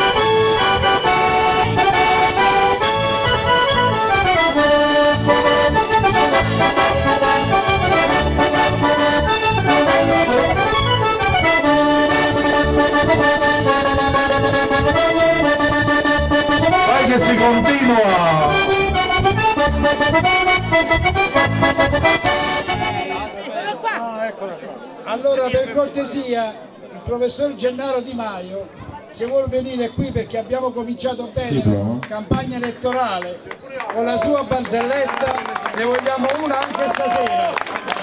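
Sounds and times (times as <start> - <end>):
accordion playing folk dance tune: 0.0 - 23.8
steady bass beat: 3.0 - 23.0.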